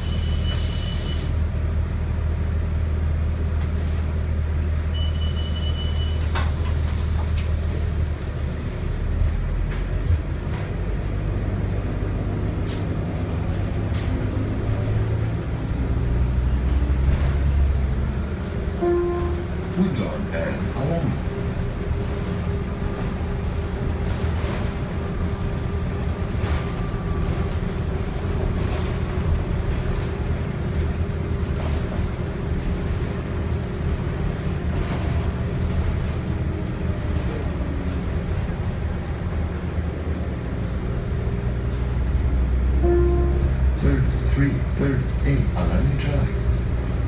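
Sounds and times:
bus engine drone: 0.0s - 47.0s.

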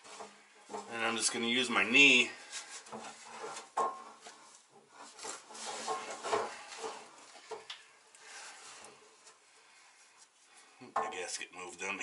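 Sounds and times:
oil pan scraping against engine: 2.5s - 7.4s.

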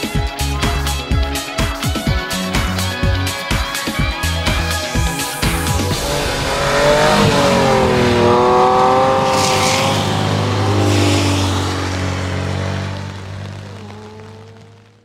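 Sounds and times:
race car engine revving: 4.8s - 15.0s
tyre noise on wet tarmac: 5.5s - 15.0s.

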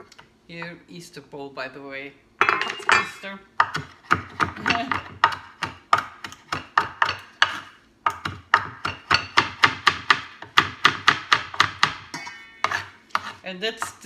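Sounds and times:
knife chopping on wooden board: 3.6s - 14.0s.

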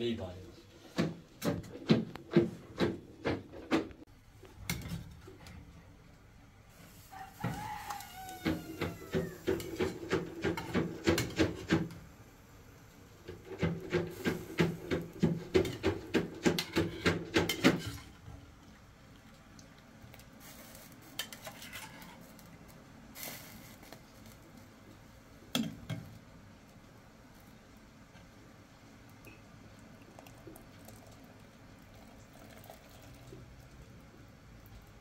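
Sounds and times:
rooster crowing: 7.0s - 9.8s.

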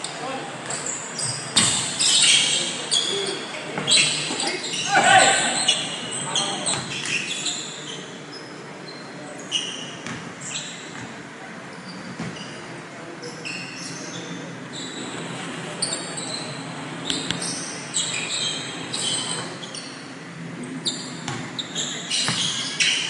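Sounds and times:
sneaker squeaks on hardwood: 0.6s - 11.1s, 11.7s - 12.6s, 20.8s - 23.0s
basketballs bouncing: 21.2s - 21.5s.

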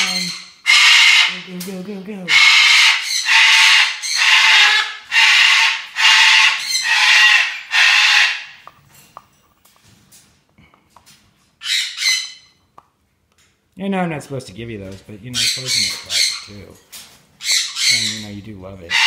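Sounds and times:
macaw squawking: 0.0s - 1.6s, 2.3s - 8.6s, 11.6s - 12.6s, 15.4s - 16.6s, 17.4s - 19.0s.

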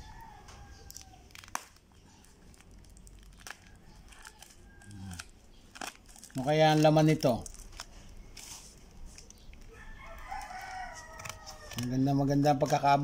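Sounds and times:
plastic tape crinkling: 0.7s - 12.9s.

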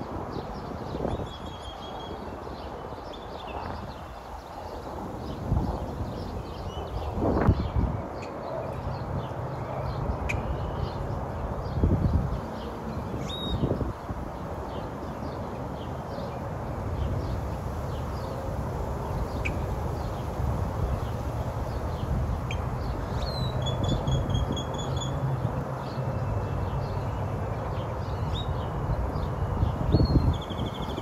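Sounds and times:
small birds chirping: 14.6s - 31.0s.

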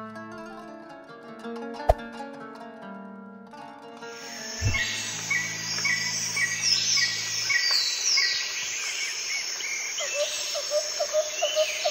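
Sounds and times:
birds chirping: 4.2s - 11.9s
downward-sweeping bird calls: 4.2s - 11.9s.

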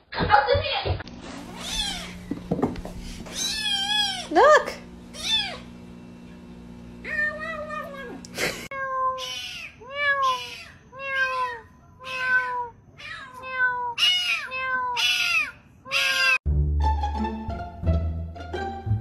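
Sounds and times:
cats meowing: 1.4s - 2.2s, 3.2s - 4.3s, 5.2s - 5.7s, 7.0s - 16.4s.

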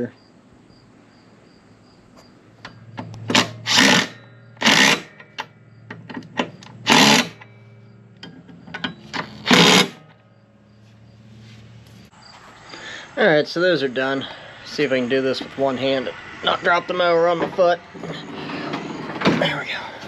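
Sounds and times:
impact driver whirring: 3.2s - 5.3s, 6.8s - 7.5s, 9.2s - 10.0s.

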